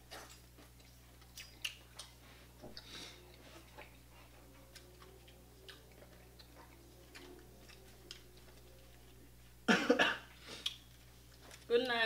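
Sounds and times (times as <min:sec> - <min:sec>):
mouth sounds while chewing: 0:00.0 - 0:09.1.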